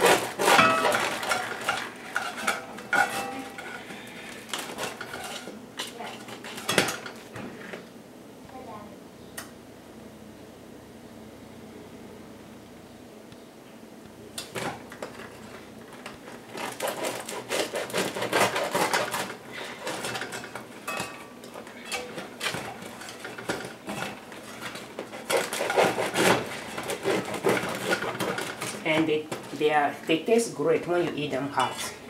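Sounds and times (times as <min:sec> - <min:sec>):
knife sawing through bread crust: 0:00.0 - 0:01.3, 0:16.5 - 0:20.2, 0:24.4 - 0:28.7.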